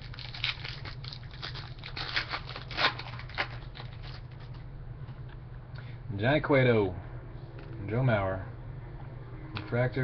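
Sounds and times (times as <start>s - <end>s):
wrapper crinkling and tearing: 0.0s - 4.6s.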